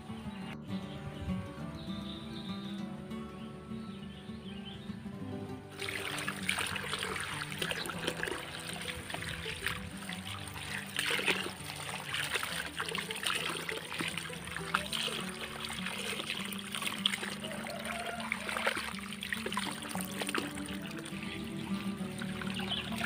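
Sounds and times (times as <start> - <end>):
water trickling into basin: 5.6 - 23.0
water pouring from hose: 5.7 - 23.0
hands rinsing vegetables: 5.8 - 23.0.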